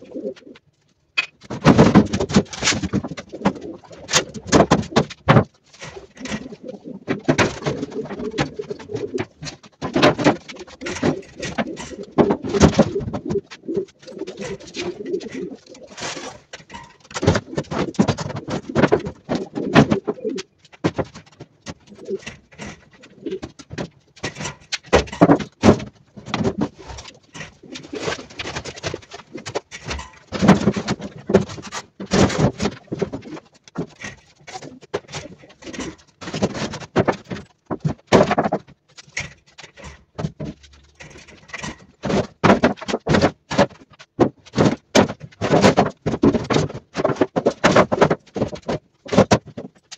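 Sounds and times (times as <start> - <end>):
pigeons cooing: 0.0 - 0.6, 3.1 - 5.0, 5.9 - 9.5, 10.2 - 20.5, 21.8 - 23.6, 26.5 - 30.2, 32.9 - 36.2
metal tins clattering on wooden shelves: 1.2 - 49.9.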